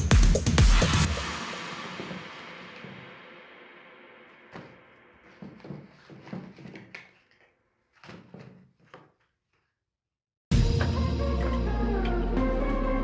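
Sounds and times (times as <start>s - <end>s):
background music: 0.0s - 4.8s, 10.5s - 13.0s.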